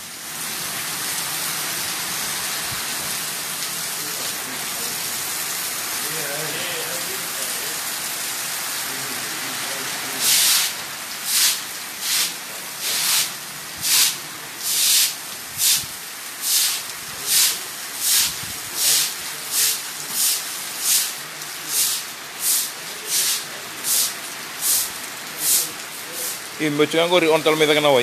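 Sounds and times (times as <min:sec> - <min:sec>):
broom sweeping: 0:10.2 - 0:26.4.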